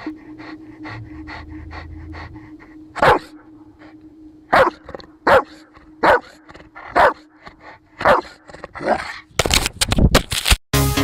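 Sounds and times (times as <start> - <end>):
music: 0.0 - 5.2, 10.7 - 11.0
dog barking: 3.0 - 3.4, 4.5 - 7.3, 8.0 - 9.1.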